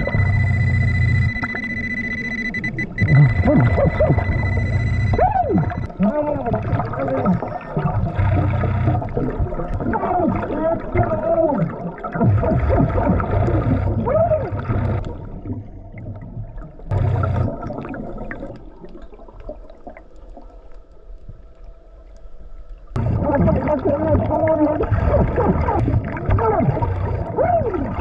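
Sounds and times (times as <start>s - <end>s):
regulator bubbling exhalations: 5.5s - 15.2s.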